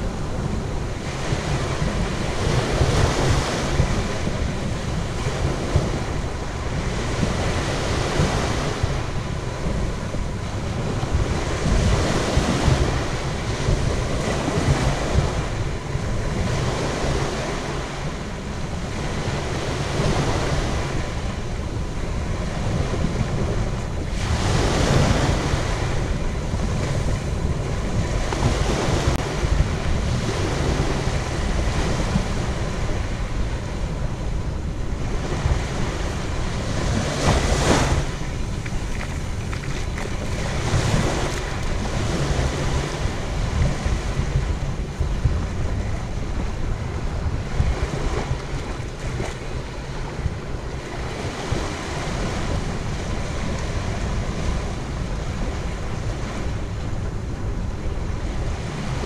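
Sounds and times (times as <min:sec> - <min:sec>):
waves washing onto beach: 0:00.0 - 0:59.0
wind rumbling on microphone: 0:00.0 - 0:59.0.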